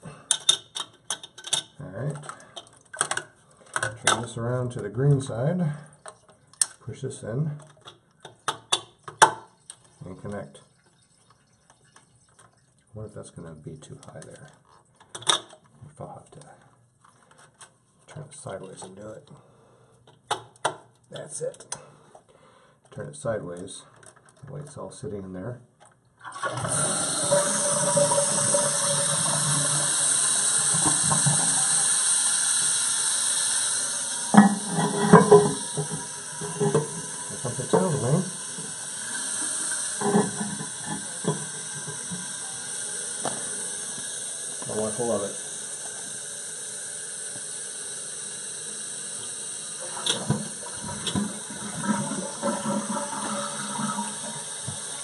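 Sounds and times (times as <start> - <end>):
toilet fill valve hissing: 26.3 - 55.0.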